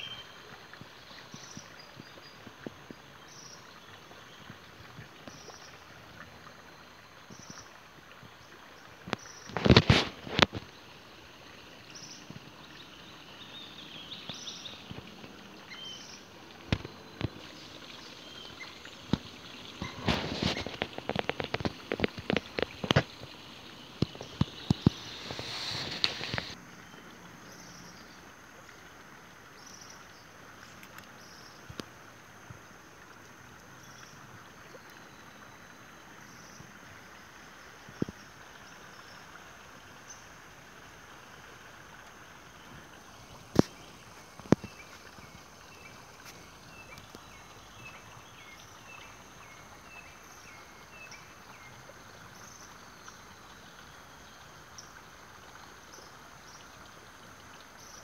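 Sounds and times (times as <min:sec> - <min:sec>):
soft hiss: 0:00.0 - 0:58.0.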